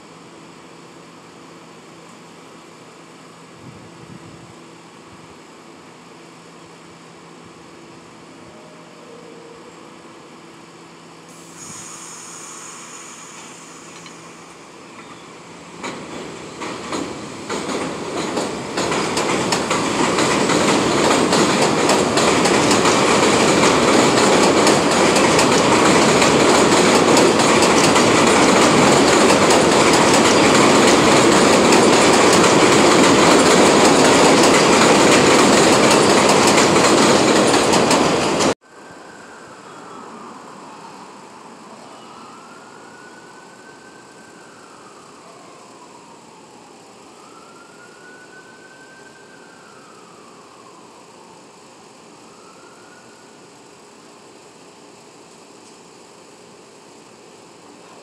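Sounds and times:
subway train hum: 0.0 - 58.0
train rumble with clattering wheels: 11.5 - 38.6.

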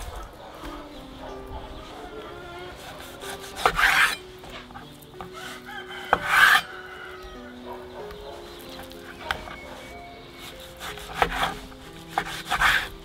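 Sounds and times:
knife slicing raw meat: 2.6 - 6.7, 8.8 - 13.0.

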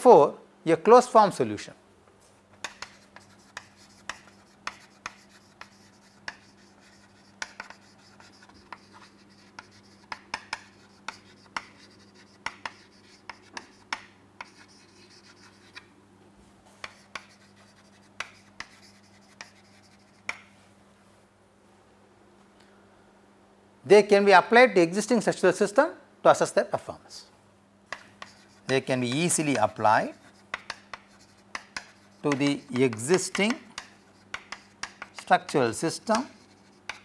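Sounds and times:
chalk tapping and scratching: 2.5 - 15.9, 16.7 - 20.6, 27.9 - 37.0.

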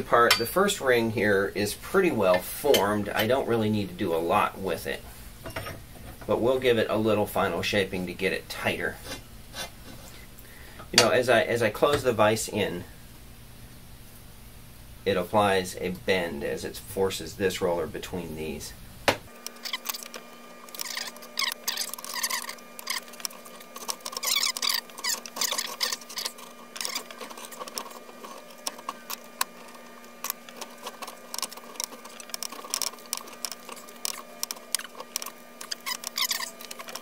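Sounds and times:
faint steady hum: 0.0 - 37.0
metal roller squeaks and chirps: 20.7 - 29.2, 30.2 - 37.0.

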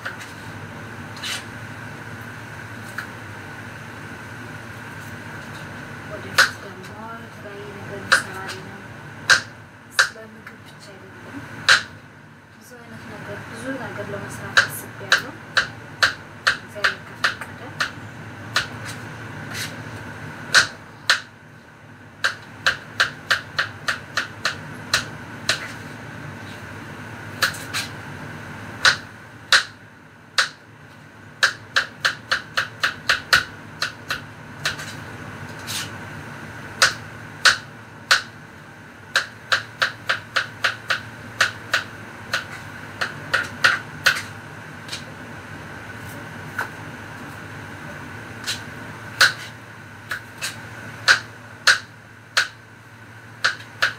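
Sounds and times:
knife chopping vegetables: 6.2 - 7.0, 9.3 - 10.2, 14.5 - 19.8, 20.5 - 21.3, 22.2 - 25.8, 27.4 - 27.9, 31.4 - 36.0, 39.1 - 45.1, 48.4 - 52.6, 53.4 - 53.9.

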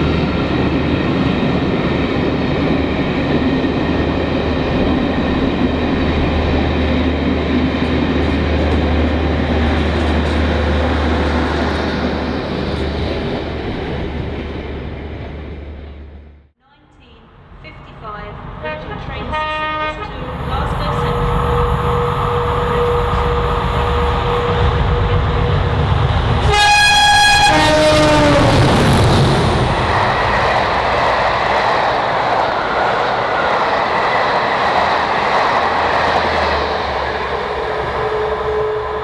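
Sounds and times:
diesel locomotive engines: 0.0 - 39.0
train horn: 18.6 - 25.7, 26.4 - 29.0, 37.5 - 39.0.

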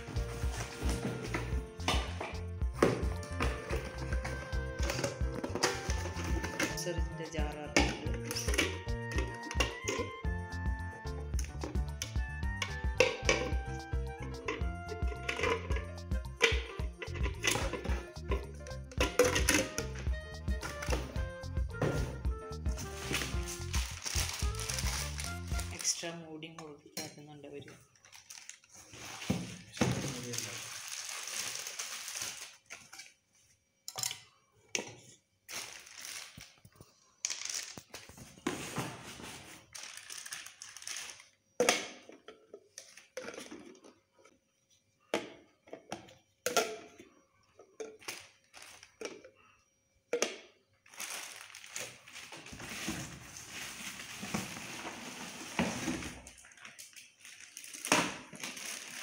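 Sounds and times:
crinkling plastic packaging: 3.2 - 10.0, 22.8 - 26.1, 27.8 - 33.2, 35.5 - 38.5, 39.4 - 41.6, 48.0 - 49.0, 50.8 - 59.0
clicks and knocks of jars and lids: 45.1 - 48.2.

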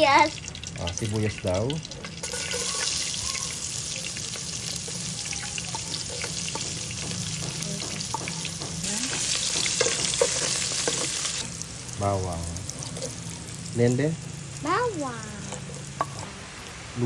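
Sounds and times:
onions sizzling in oil: 0.0 - 17.0
oil spattering ticks: 0.2 - 3.1.

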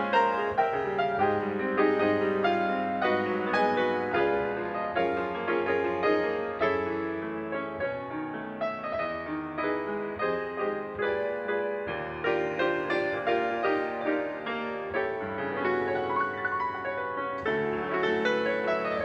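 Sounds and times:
solo jazz piano: 0.0 - 19.0.

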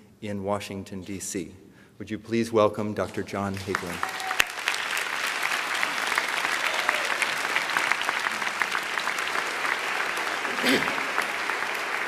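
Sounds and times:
audience applauding: 3.5 - 12.0.

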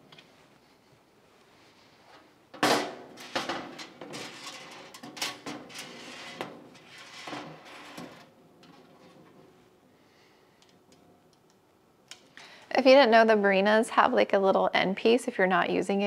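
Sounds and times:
plastic scraping: 3.2 - 9.4.

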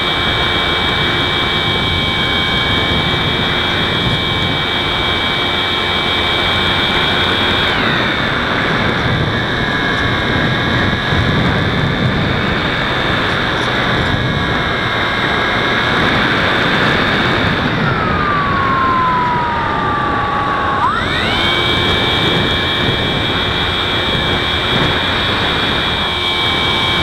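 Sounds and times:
electric motor whine: 0.0 - 27.0
wind rush: 0.0 - 27.0.

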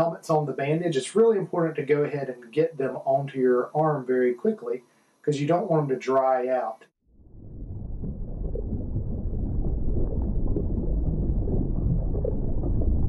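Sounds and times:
underwater rumble and wash: 7.1 - 13.0.

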